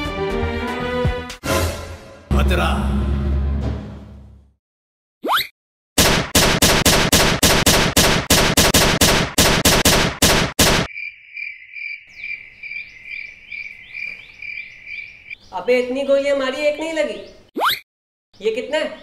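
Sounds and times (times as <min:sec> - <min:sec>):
rapid gunfire: 0:06.0 - 0:10.9
crickets chirping: 0:10.9 - 0:15.4.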